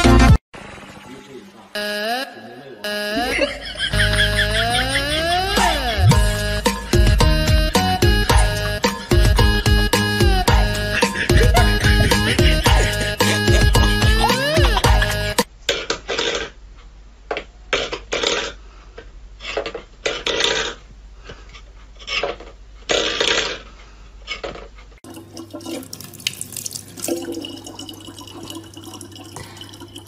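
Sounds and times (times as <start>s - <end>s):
tap running water into bottle: 25.1s - 30.0s.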